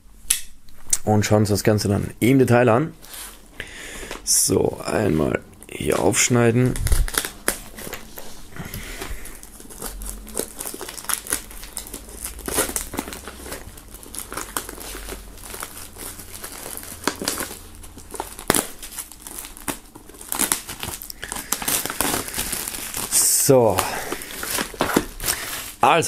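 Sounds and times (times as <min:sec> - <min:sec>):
plastic shrink-wrap tearing and crinkling: 0:05.8 - 0:26.0.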